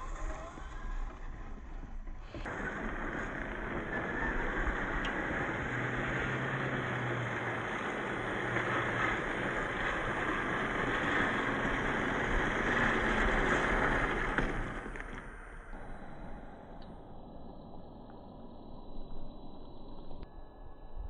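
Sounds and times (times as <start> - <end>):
tyres crunching on gravel: 0.0 - 15.4.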